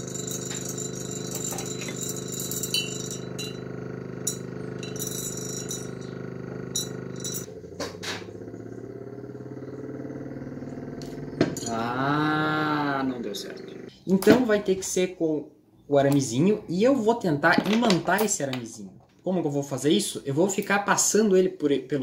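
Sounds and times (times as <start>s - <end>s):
fan motor humming: 0.0s - 15.0s.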